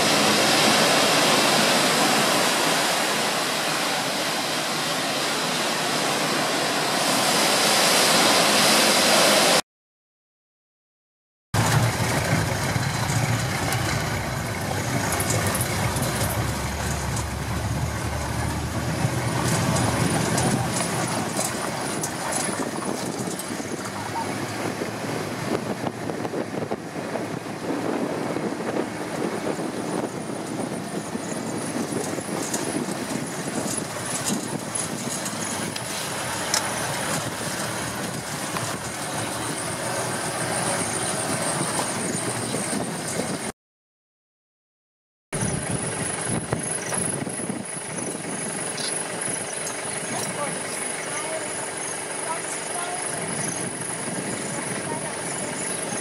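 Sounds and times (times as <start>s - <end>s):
wind and road noise: 0.0s - 9.6s, 11.6s - 43.5s, 45.4s - 56.0s
vehicle engine running: 11.6s - 42.9s, 45.4s - 56.0s.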